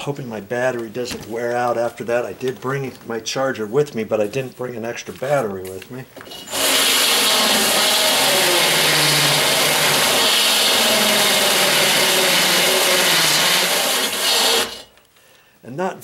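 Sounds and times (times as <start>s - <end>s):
cordless drill grinding wood: 6.3s - 15.0s.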